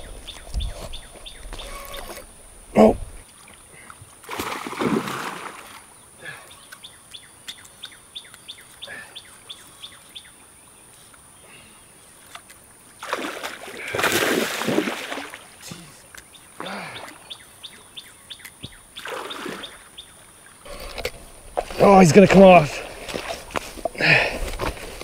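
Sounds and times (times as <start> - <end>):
fish thrashing and splashing: 4.3 - 5.8, 13.0 - 15.4.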